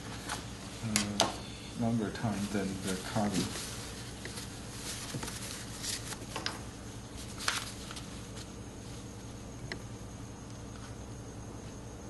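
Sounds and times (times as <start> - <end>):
steady low hum: 0.0 - 12.0
tissue paper rustling: 1.8 - 6.4, 7.1 - 9.1.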